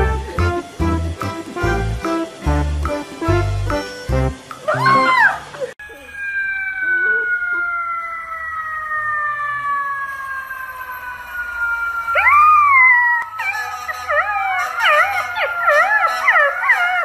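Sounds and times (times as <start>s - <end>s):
dog howling: 4.7s - 10.0s, 12.1s - 17.0s.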